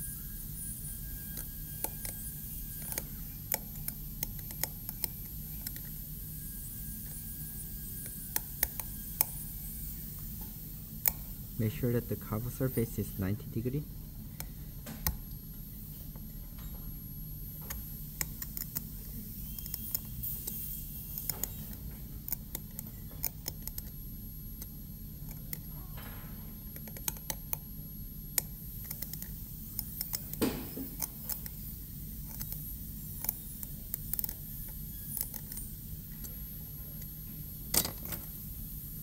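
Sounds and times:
steady low hum: 0.0 - 39.0
hand tool scraping plastic tooth: 0.7 - 6.0, 17.7 - 24.0, 28.4 - 31.6, 32.2 - 36.4.

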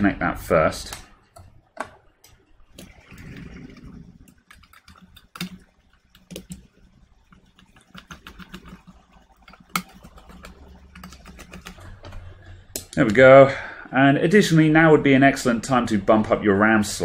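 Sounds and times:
plastic fan parts clicking: 4.3 - 6.7, 7.3 - 13.2.

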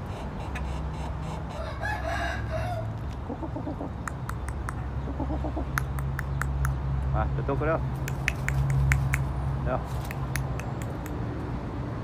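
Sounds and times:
rooster crowing: 1.5 - 2.9
sharp ticks: 4.0 - 4.8, 5.7 - 6.8, 8.0 - 9.3, 10.0 - 11.2
quick low clucks: 8.0 - 11.2.

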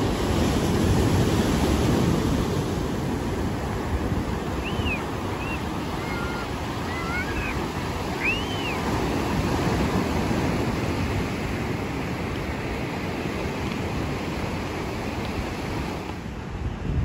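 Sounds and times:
surf breaking on beach: 0.0 - 17.0.

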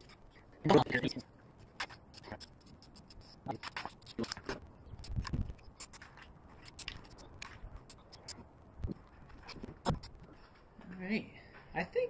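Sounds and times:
clicks and scrapes of handling: 1.6 - 10.4.

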